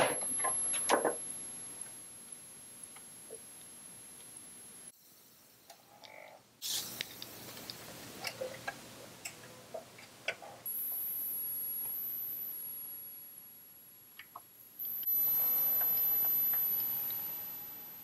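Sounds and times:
disk drive whirring: 10.7s - 13.2s, 14.3s - 18.0s.

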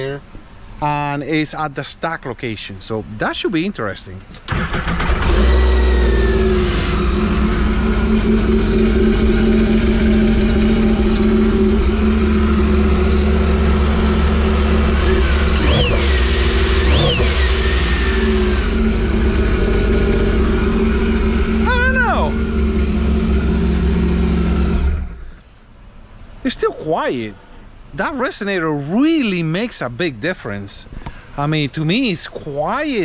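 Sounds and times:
watercraft engine idling and revving: 4.5s - 25.3s.

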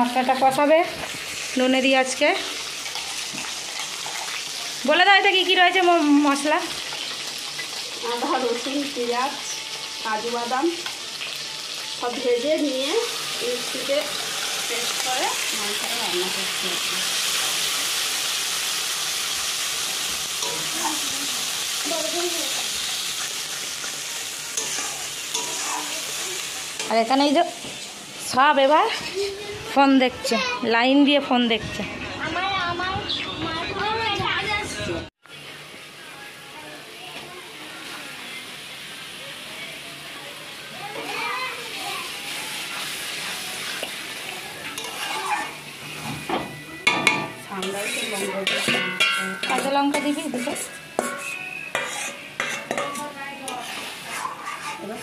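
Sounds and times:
paste sizzling in hot oil: 0.0s - 28.6s, 37.4s - 46.4s, 47.4s - 55.0s
metal spatula scraping: 22.5s - 27.2s, 44.6s - 46.4s, 47.0s - 55.0s.

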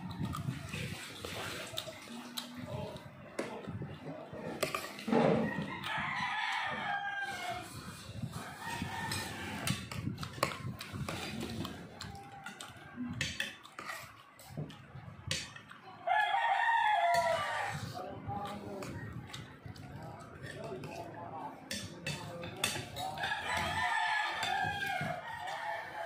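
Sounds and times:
cutlery scraping on ceramic plate: 8.6s - 11.7s, 12.5s - 14.6s, 21.7s - 25.1s.

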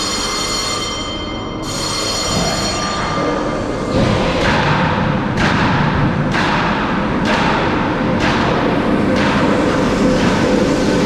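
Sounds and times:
roller coaster rumbling on track: 2.1s - 11.0s.

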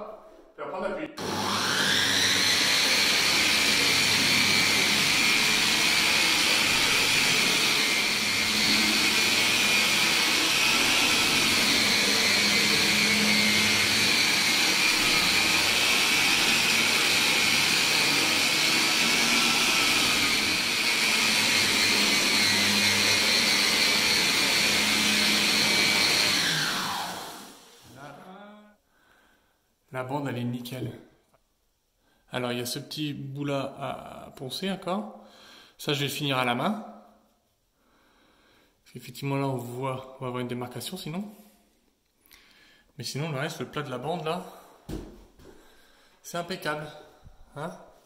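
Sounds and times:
drywall sander whining: 1.2s - 28.4s.

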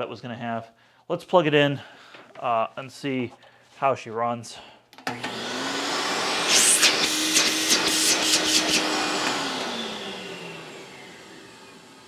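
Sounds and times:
vacuum cleaner motor whining: 5.0s - 12.0s.

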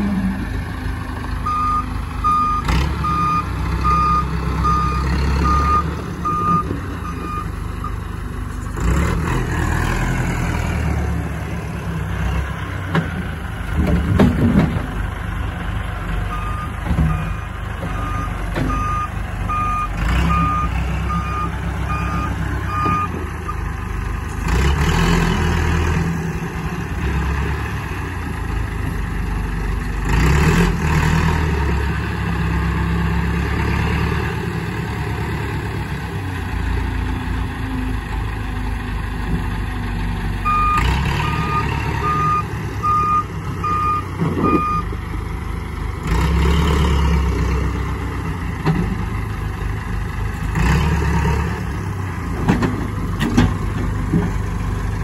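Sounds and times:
tractor diesel engine running: 0.0s - 55.0s
reversing alarm beeping: 1.4s - 8.0s, 16.3s - 23.6s, 40.4s - 44.9s.

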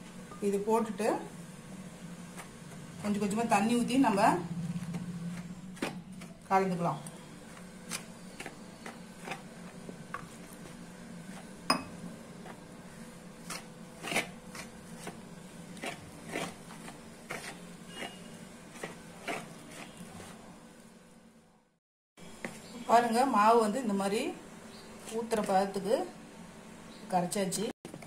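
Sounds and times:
low steady hum: 0.0s - 28.0s
ladle scraping plastic bowl: 15.8s - 20.4s.

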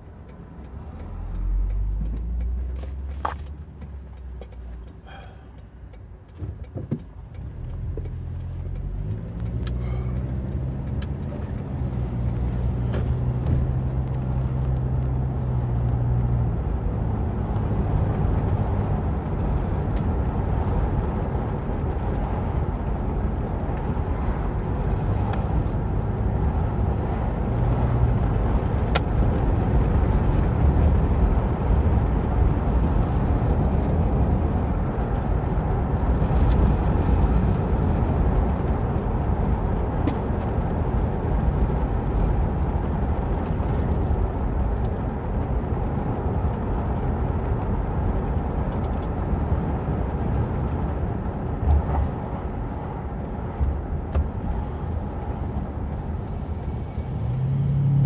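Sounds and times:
road and engine rumble in car: 0.0s - 58.0s
faint ticks: 0.2s - 12.6s.

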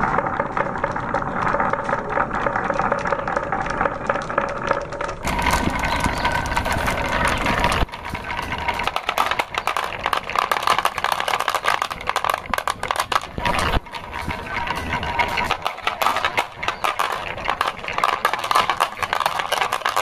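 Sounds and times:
marbles rattling on wooden track: 0.0s - 20.0s.

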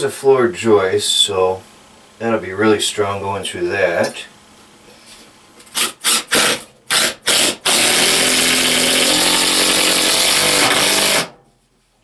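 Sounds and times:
cordless drill driving a screw: 5.8s - 11.3s.

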